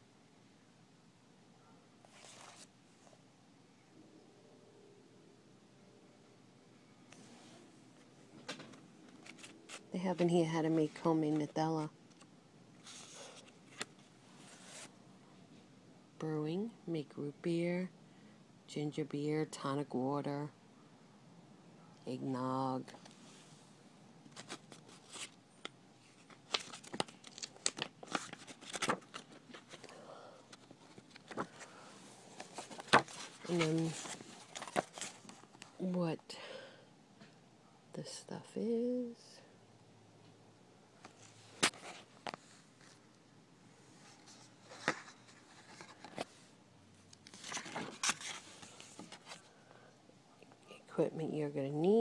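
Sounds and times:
paper pages crackling and flicking: 0:02.1 - 0:02.7, 0:08.5 - 0:11.5, 0:26.1 - 0:29.9, 0:30.5 - 0:35.7, 0:47.2 - 0:49.4.

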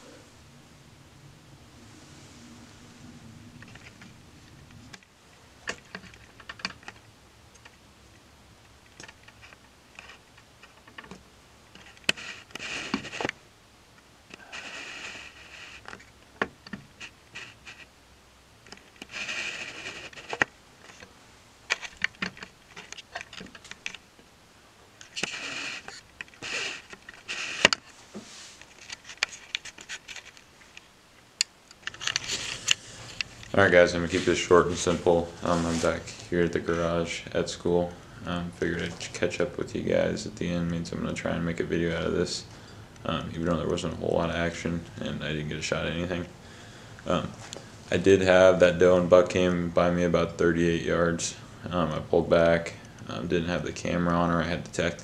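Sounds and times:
clothing rustling: 0:25.0 - 0:31.0, 0:31.8 - 0:40.1.

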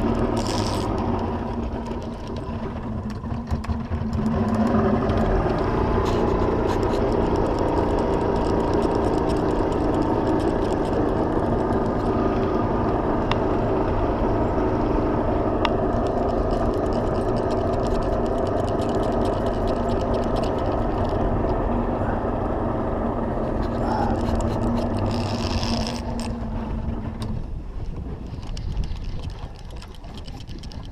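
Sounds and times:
sharp ticks: 0:00.0 - 0:13.4, 0:15.6 - 0:21.6, 0:28.2 - 0:30.9
outboard motor running: 0:00.0 - 0:30.9
wind rumble on microphone: 0:00.0 - 0:30.9.

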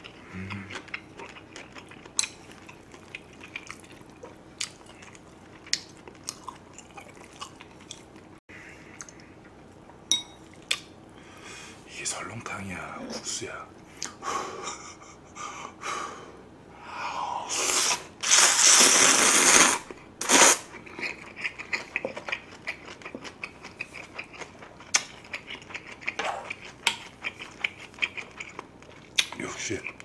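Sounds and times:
noodle slurping: 0:17.5 - 0:20.7.

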